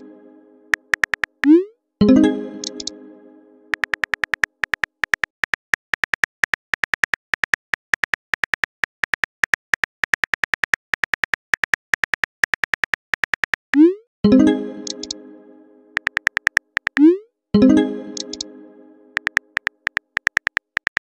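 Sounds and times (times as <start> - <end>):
phone keyboard clicks: 0.7 - 1.5, 3.7 - 13.6, 16.0 - 17.0, 18.2 - 18.4, 19.2 - 21.0.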